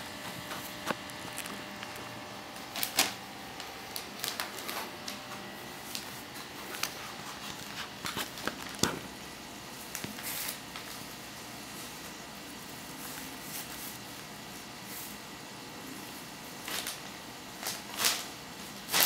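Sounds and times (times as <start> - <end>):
wrapping paper rustling: 0.0 - 9.1, 9.8 - 15.2, 15.8 - 19.0.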